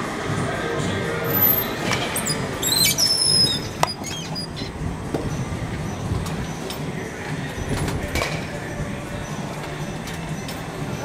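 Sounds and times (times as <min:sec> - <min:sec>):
steady background noise: 0:00.0 - 0:11.0
metal door squealing: 0:01.3 - 0:06.9.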